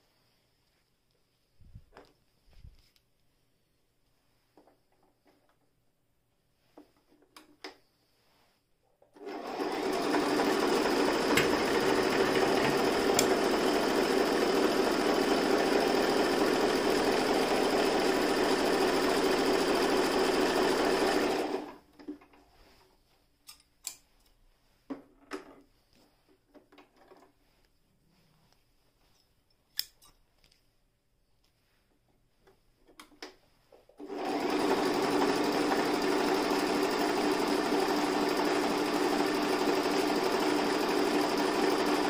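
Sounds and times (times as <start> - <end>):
sewing machine stitching: 9.1 - 22.3, 34.0 - 42.0.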